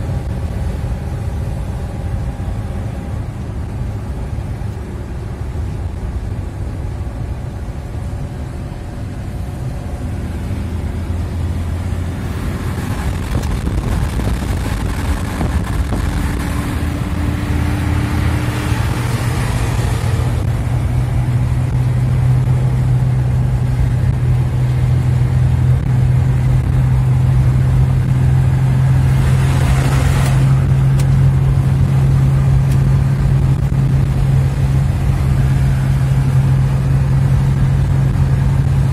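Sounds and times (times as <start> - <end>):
car engine and tyre noise: 0.0 - 38.9
passing traffic hiss on wet road: 28.9 - 30.7.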